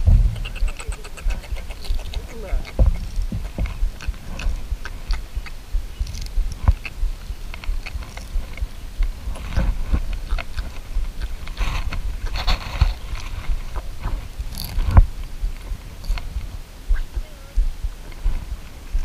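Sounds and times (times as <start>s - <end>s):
loud knock: 0.0s - 0.5s
clicks scrapes and rustles: 0.4s - 16.5s.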